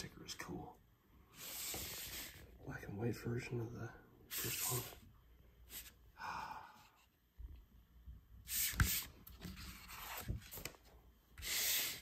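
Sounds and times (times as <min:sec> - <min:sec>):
paper sheets rustling: 0:08.5 - 0:12.0.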